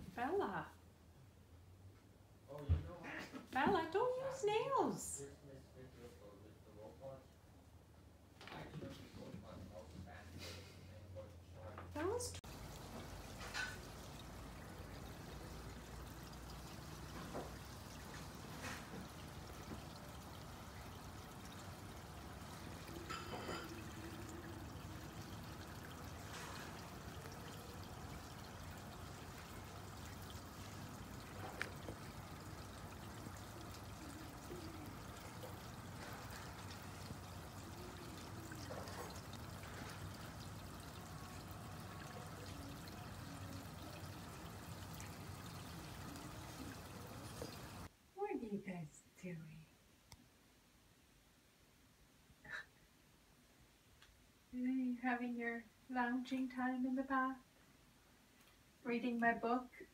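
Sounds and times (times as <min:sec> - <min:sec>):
pond fountain splashing: 0:12.0 - 0:47.9.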